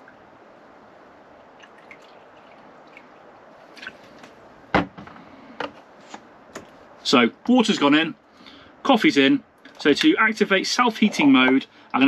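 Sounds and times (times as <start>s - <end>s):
water trickling into tank: 0.0s - 4.2s.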